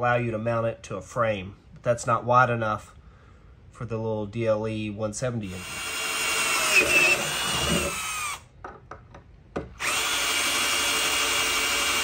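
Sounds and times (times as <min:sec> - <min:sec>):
drill motor whining through metal: 0:05.6 - 0:08.4, 0:09.8 - 0:12.0.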